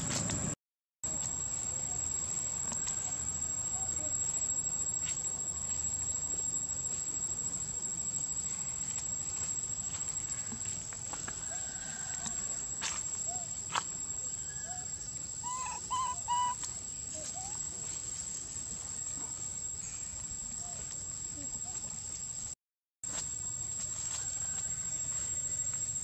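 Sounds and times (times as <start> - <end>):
short high animal calls: 14.7 - 16.6.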